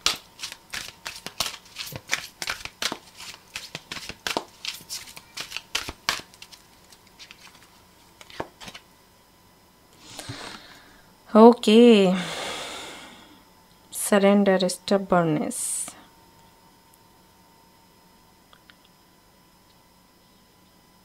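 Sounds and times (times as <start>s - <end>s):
cards being shuffled: 0.0s - 8.8s.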